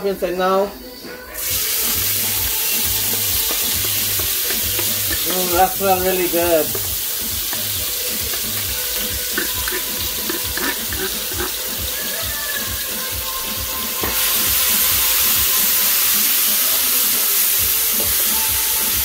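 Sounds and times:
food sizzling in oil: 0:01.3 - 0:19.0.

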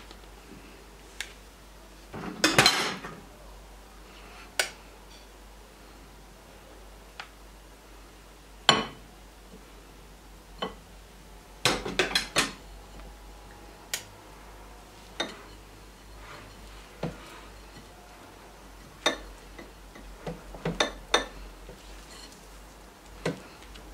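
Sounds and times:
spatulas clinking on glass bowl: 0:18.8 - 0:22.5.

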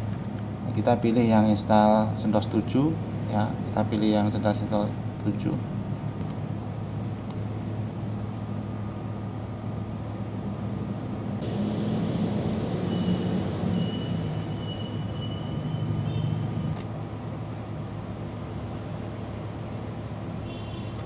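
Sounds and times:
computer humming: 0:11.4 - 0:16.8.

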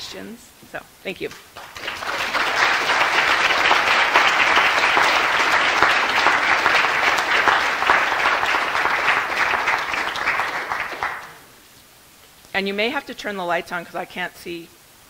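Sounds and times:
audience applauding: 0:01.5 - 0:11.5.

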